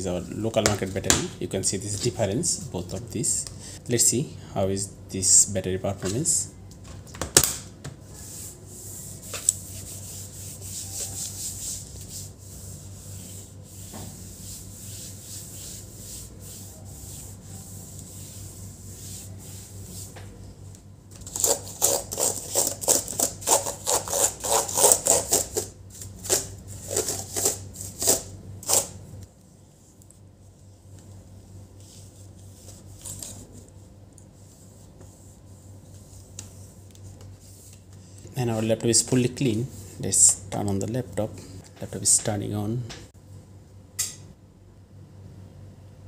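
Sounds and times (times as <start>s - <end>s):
cloth wiping laptop lid: 8.2s - 20.2s.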